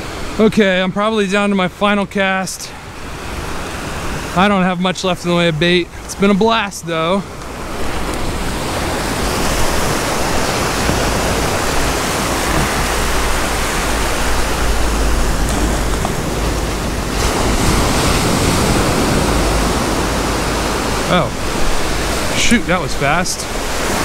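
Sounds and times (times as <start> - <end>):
ocean surf washing: 0.0 - 24.0
wind buffeting microphone: 7.0 - 24.0.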